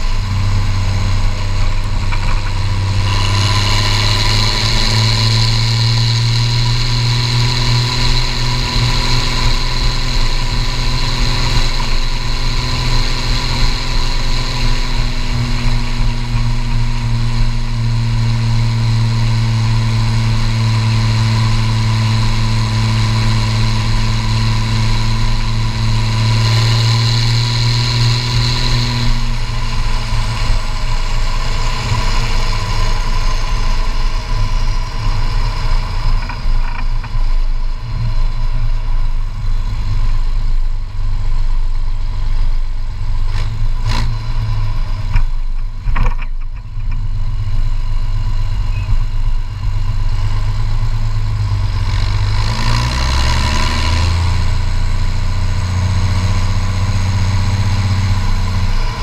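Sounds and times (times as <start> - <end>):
tractor diesel engine running hard: 0.0 - 59.0
turbo whistle: 47.7 - 50.4.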